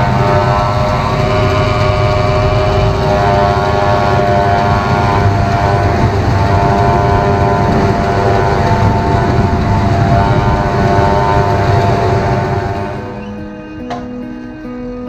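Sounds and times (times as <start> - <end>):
tractor running: 0.0 - 13.8
forage harvester whining drone: 0.0 - 15.0.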